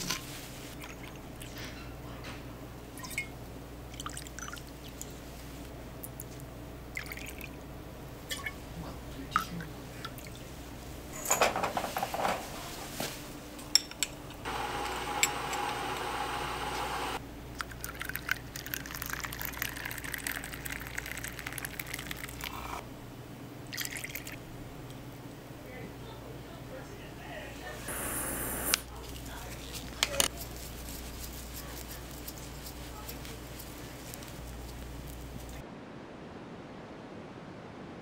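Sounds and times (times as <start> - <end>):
liquid pouring: 3.0 - 5.2, 6.9 - 7.6, 17.5 - 22.7, 23.7 - 24.4.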